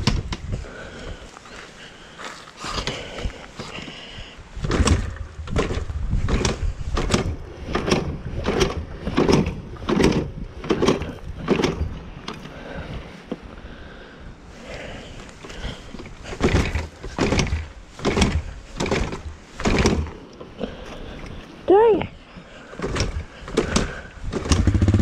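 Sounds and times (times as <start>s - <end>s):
dirt bike starting: 4.6s - 12.8s, 15.4s - 20.2s, 22.6s - 25.0s
rhythmic engine pulses: 23.5s - 25.0s.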